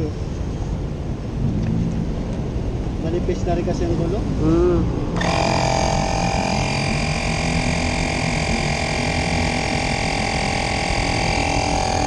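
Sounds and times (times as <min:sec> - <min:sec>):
electric tyre inflator buzzing: 0:05.2 - 0:12.0.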